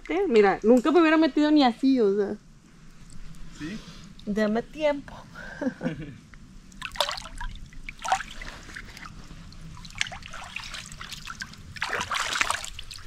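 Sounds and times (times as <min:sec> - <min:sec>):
water splashing and sloshing: 0:06.6 - 0:13.0.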